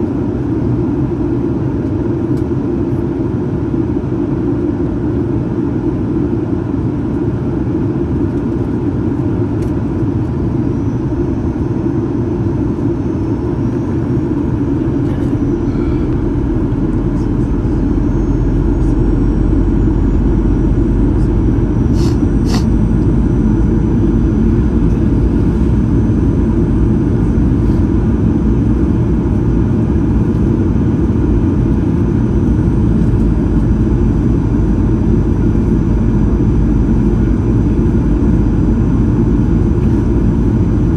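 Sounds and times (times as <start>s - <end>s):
airplane cabin engine rumble: 0.0s - 40.9s.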